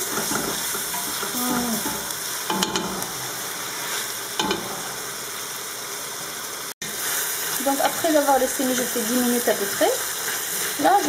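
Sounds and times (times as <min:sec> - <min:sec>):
chicken sizzling in a pot: 0:00.0 - 0:11.0.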